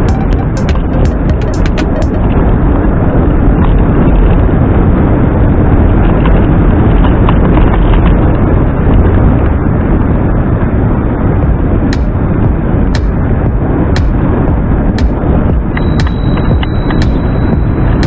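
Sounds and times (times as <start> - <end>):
wind buffeting microphone: 2.2 - 18.0.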